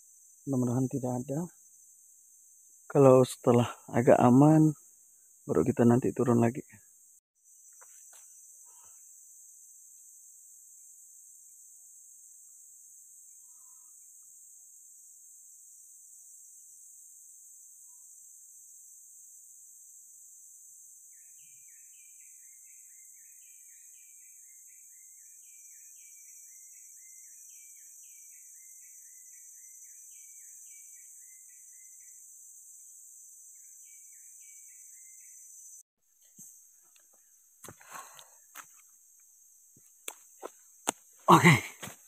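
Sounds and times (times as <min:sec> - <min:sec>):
insects droning: 0:00.0 - 0:42.0
bird chirping: 0:33.6 - 0:38.6.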